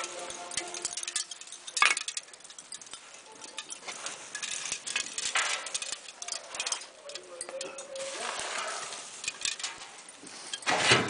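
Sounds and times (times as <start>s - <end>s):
glaze tinkling and crackling: 0.0s - 11.0s.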